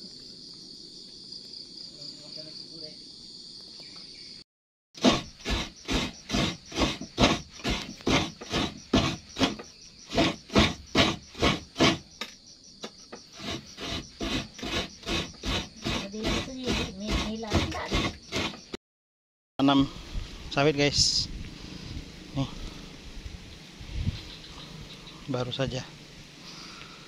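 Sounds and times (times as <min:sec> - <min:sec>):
coconut rasping on a grater: 0:05.0 - 0:12.0, 0:13.4 - 0:18.7.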